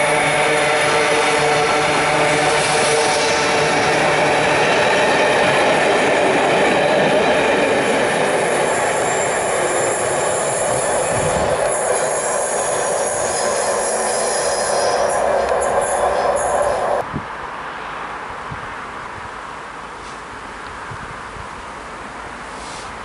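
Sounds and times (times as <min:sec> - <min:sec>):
train wheels rumbling on rails: 0:00.0 - 0:17.2.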